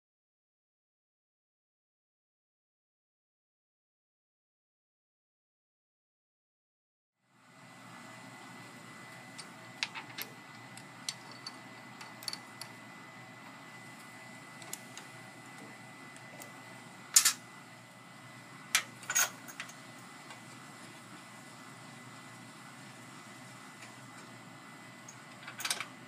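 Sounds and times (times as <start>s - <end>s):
steady background hum: 7.2s - 26.0s.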